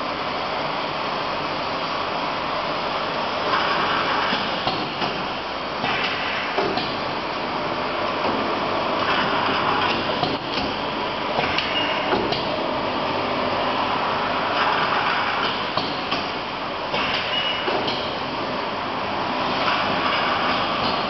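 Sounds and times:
machine clunks and clicks: 11.4s - 12.6s, 15.4s - 18.2s, 19.7s - 21.0s.

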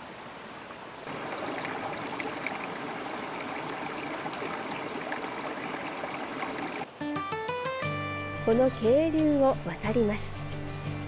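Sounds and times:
mountain stream flowing: 0.0s - 7.0s.

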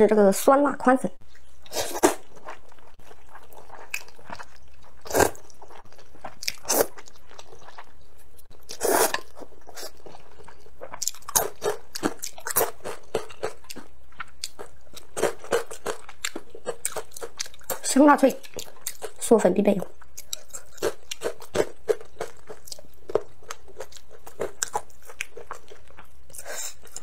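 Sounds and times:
wet chewing: 1.2s - 19.2s, 20.0s - 27.0s
slurping noodles: 8.7s - 10.0s.

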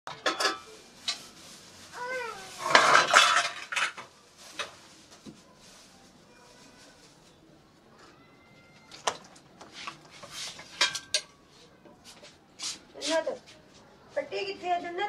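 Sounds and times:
metal pots clinking: 0.1s - 1.2s, 2.6s - 4.1s, 10.6s - 11.4s
plastic bag rustling: 0.6s - 11.8s
cat meowing: 8.0s - 9.1s.

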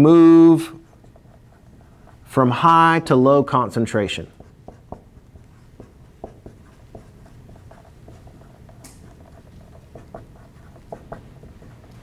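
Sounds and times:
marker writing on whiteboard: 0.0s - 2.8s, 4.0s - 12.0s
marker scrape: 0.7s - 2.3s, 4.3s - 12.0s.

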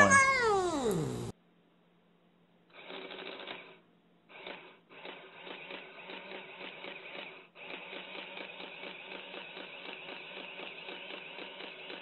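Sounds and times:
printing calculator rattling: 4.3s - 12.0s.

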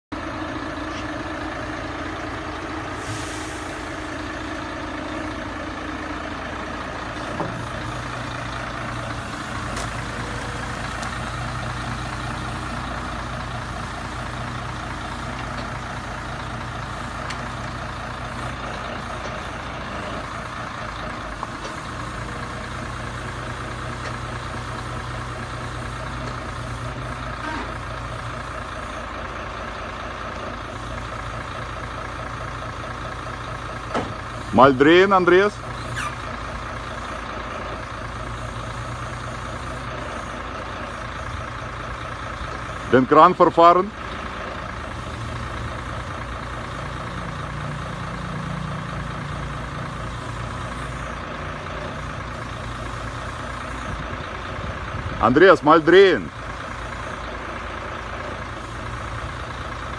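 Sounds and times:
truck diesel engine running: 0.1s - 59.9s
hydraulic hiss: 3.0s - 4.0s.

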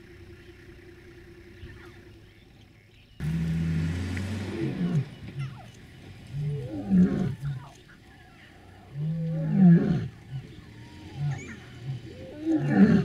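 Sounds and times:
lion roaring: 3.3s - 5.7s, 6.3s - 7.8s, 8.5s - 13.0s
lion grunts: 8.8s - 13.0s.

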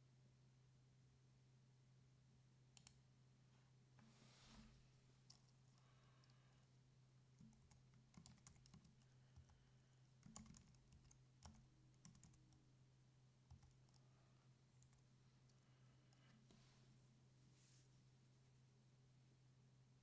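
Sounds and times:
low steady hum: 0.0s - 20.0s
faint clicks: 2.7s - 3.0s.

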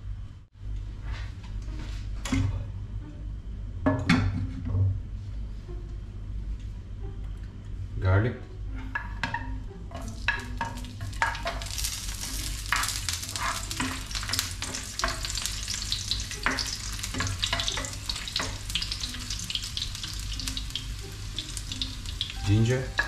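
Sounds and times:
spatula scraping and tapping pan: 8.8s - 15.7s, 16.3s - 19.3s
garlic sizzling in oil: 9.0s - 23.0s.

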